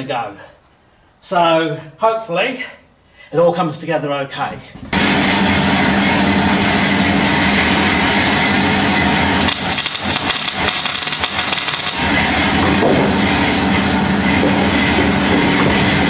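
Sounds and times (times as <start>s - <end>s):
welder electrical hum: 4.9s - 16.0s
welding arc crackling and hissing: 7.3s - 14.2s.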